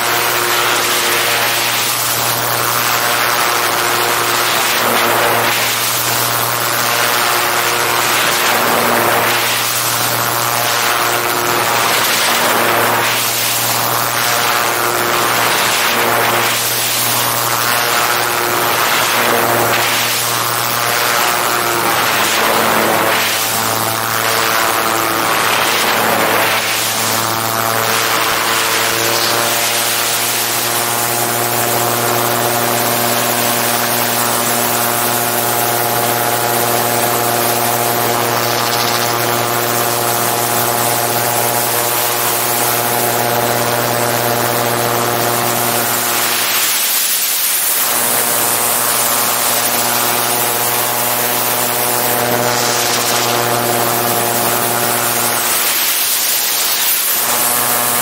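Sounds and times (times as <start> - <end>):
gyroplane engine and propeller: 0.0 - 58.0.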